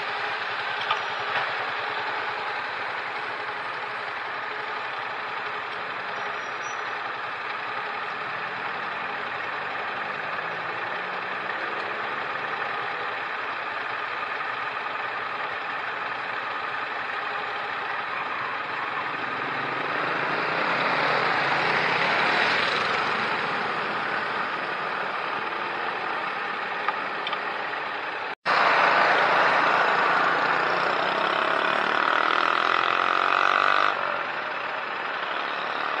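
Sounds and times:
car road noise: 0.0 - 36.0
road traffic hum: 0.0 - 36.0
motorcycles passing: 18.6 - 26.8, 28.5 - 36.0.

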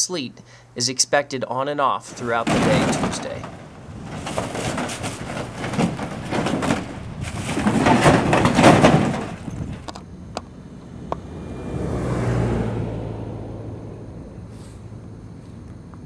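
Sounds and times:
sheet metal and rubble clattering: 2.0 - 10.0.

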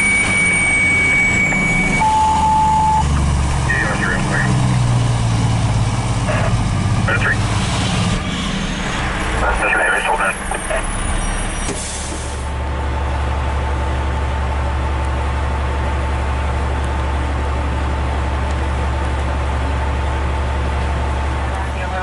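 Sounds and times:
heavy vehicle engine drone: 0.0 - 22.0.

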